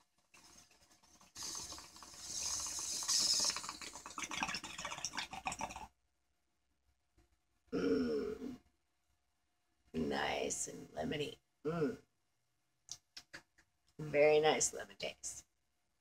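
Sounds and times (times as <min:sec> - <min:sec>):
water bubbling in a bong: 0:00.3 - 0:05.9.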